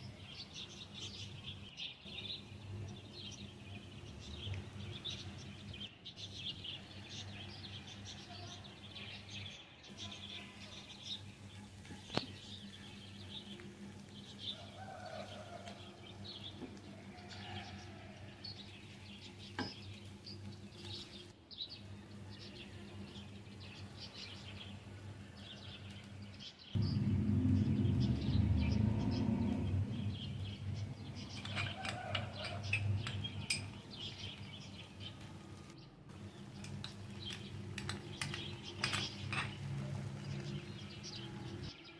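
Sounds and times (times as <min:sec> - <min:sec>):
small birds chirping: 0:00.0 - 0:41.9
steady low hum: 0:17.9 - 0:41.7
low rumble: 0:26.8 - 0:31.5.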